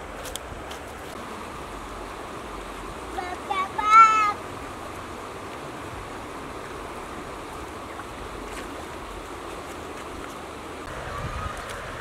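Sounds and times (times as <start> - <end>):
river flowing over rocks: 0.0 - 12.0.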